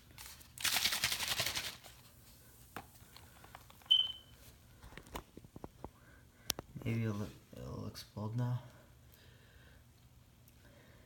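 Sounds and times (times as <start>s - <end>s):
liquid sloshing in shaken bottle: 0.2s - 2.0s.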